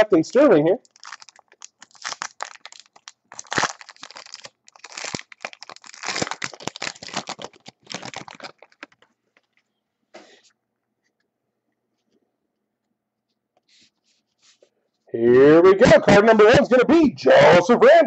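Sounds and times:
foil wrapper crinkling and tearing: 0.8s - 9.1s.

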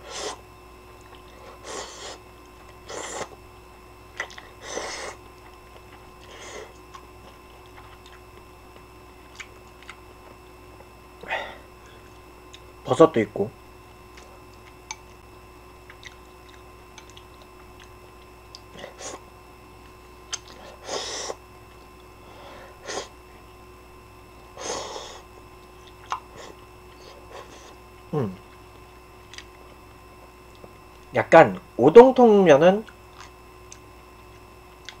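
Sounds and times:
chewing: 4.1s - 4.6s, 5.2s - 8.4s, 9.2s - 10.4s, 15.8s - 18.9s, 25.6s - 26.3s, 28.4s - 29.8s, 32.8s - 35.0s.

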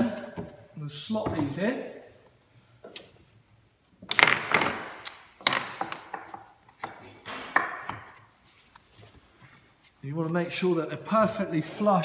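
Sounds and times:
sharp wooden clicks and knocks: 4.0s - 8.3s.

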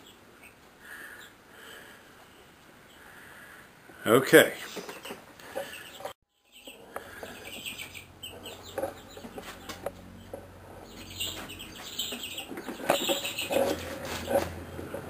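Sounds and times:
chickens clucking: 4.6s - 15.0s.

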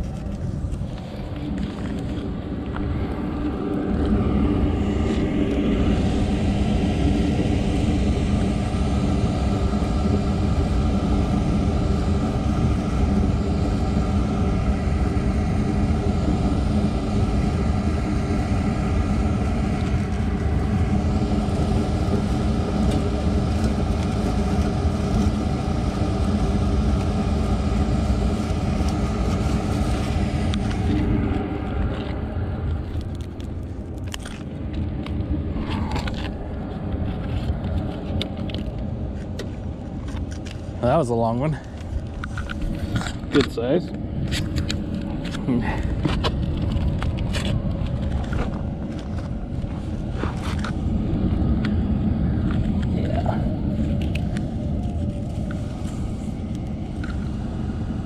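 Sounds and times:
constant low hum: 0.0s - 58.0s
loud steady rumble: 0.0s - 58.0s.

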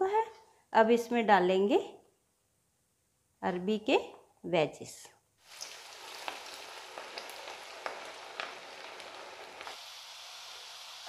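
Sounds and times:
deep-frying sizzle: 5.4s - 11.0s
oil popping: 5.5s - 9.8s.

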